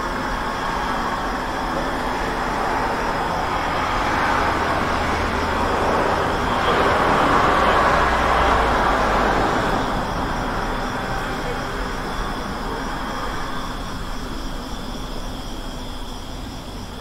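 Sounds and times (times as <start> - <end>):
road traffic: 0.0 - 17.0
vehicle passing: 2.0 - 12.8.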